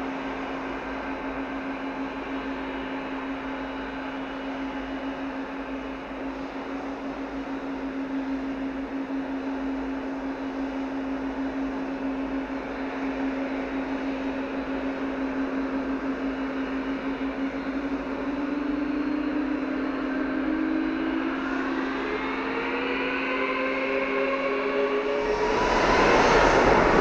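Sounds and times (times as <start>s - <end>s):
jet engines whining: 17.8s - 27.0s.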